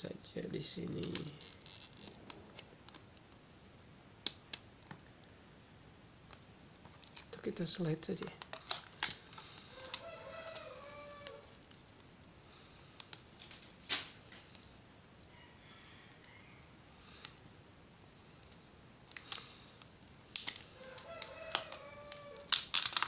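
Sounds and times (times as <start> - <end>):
plastic crinkling: 0.9 - 3.0, 6.8 - 12.3, 18.4 - 23.0
plastic film peeling: 0.9 - 3.3, 6.3 - 7.4, 8.1 - 12.3, 13.0 - 15.1, 18.2 - 23.0
rooster crowing: 9.7 - 11.6, 15.3 - 16.7, 20.7 - 22.5.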